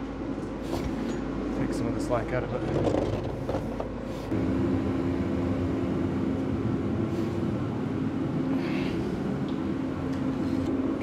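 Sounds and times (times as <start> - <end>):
machine humming: 4.3 - 11.0.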